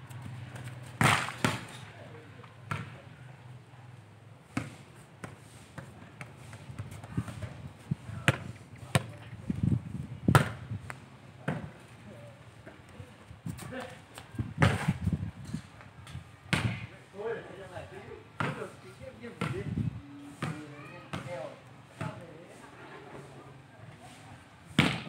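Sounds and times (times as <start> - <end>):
ball thudding and bouncing: 0.2 - 1.8, 10.3 - 10.6, 24.8 - 25.0.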